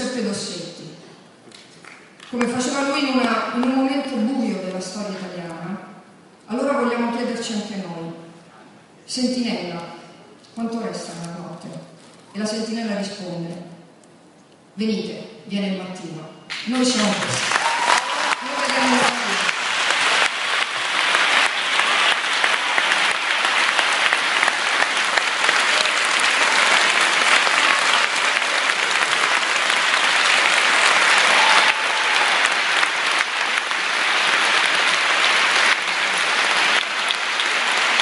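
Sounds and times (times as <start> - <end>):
large audience applauding: 1.5 - 2.4, 16.5 - 38.0.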